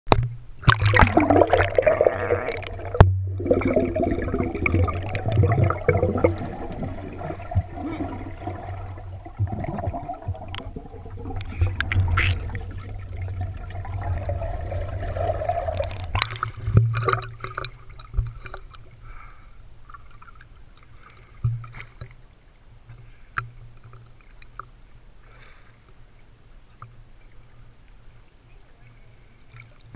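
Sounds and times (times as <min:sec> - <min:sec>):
muffled underwater sloshing: 0:00.1 - 0:29.9.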